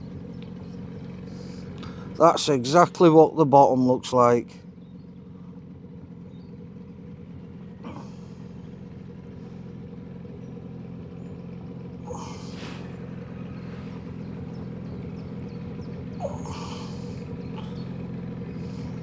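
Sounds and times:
outboard motor running: 0:00.0 - 0:19.0.

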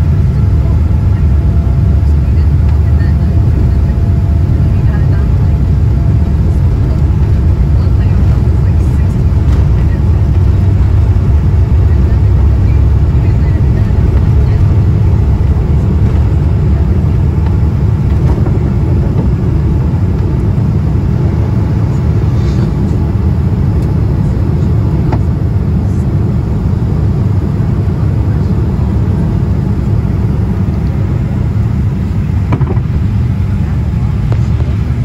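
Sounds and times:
jet engines and airflow rumbling: 0:00.0 - 0:35.0.

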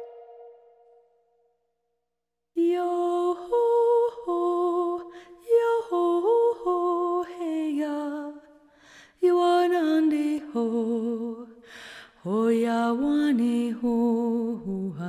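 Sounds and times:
woman singing unaccompanied: 0:02.6 - 0:08.4, 0:09.2 - 0:11.5, 0:12.2 - 0:15.0.

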